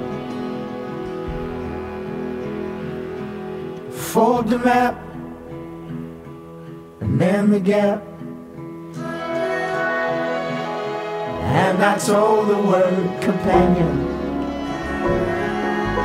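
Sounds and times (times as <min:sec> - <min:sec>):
guitar-backed song: 0:00.0 - 0:16.0
sliding vocal phrases: 0:11.3 - 0:16.0.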